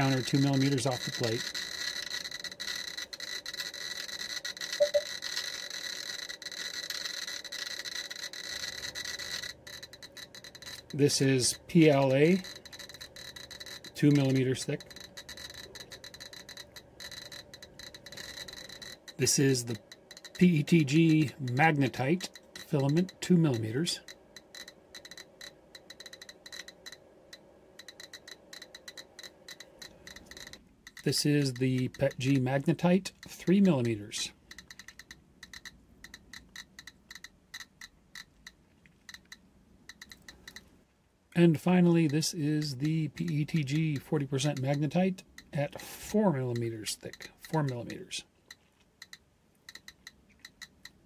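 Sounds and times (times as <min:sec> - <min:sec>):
geiger counter crackling: 0:00.0 - 0:51.0
double electronic blip: 0:04.8 - 0:05.1.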